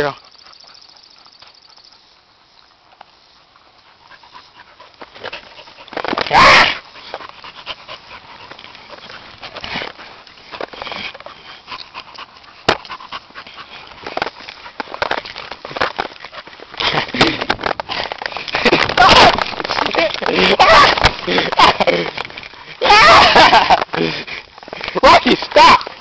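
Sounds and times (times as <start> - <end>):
dogs panting and scuffling: 0.0 - 26.0
rustles on grass: 0.0 - 26.0
dog short cry: 6.3 - 6.8.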